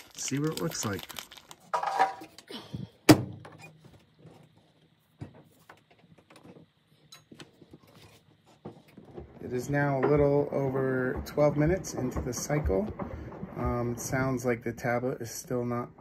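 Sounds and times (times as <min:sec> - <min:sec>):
washing machine thunk: 0:09.2 - 0:15.0.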